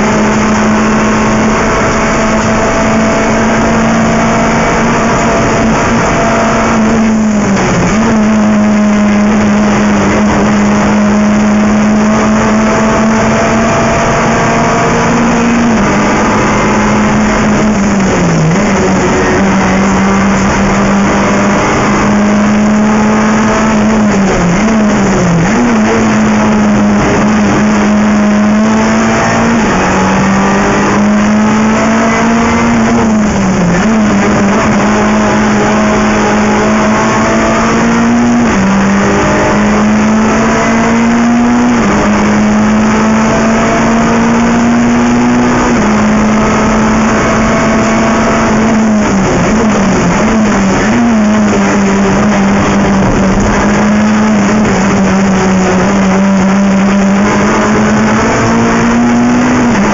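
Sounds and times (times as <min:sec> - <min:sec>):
race car engine at high revs: 0:00.0 - 0:59.9.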